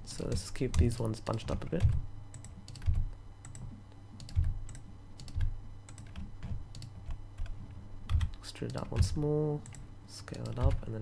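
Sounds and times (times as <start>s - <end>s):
computer keyboard keystrokes: 0.1s - 10.9s.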